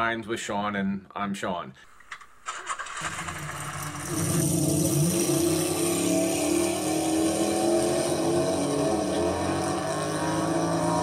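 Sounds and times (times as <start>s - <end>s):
car engine accelerating: 2.8s - 11.0s.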